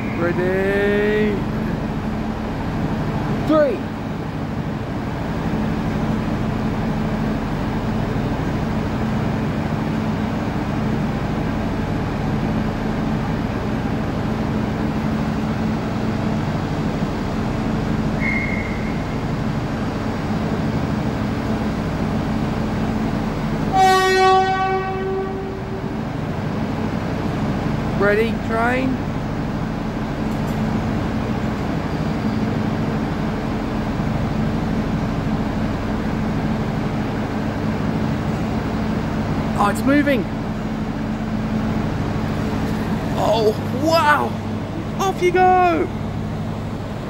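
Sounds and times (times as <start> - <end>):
train engines idling: 0.0 - 47.0
train horn: 23.7 - 25.9.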